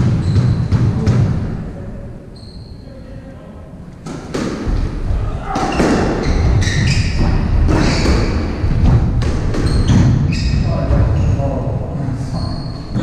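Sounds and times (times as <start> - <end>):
squash ball hitting racket and walls: 0.0 - 1.7, 4.0 - 11.5
shoes squeaking on wooden floor: 5.6 - 8.4, 9.6 - 10.9.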